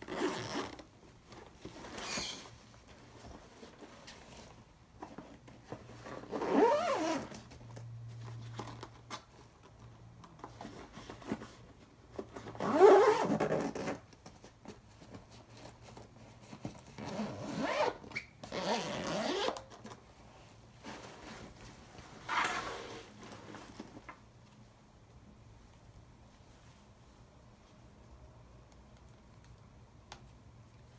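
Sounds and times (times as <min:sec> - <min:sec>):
backpack zipper pulled: 0:00.0 - 0:00.8, 0:06.3 - 0:07.3, 0:17.0 - 0:19.6.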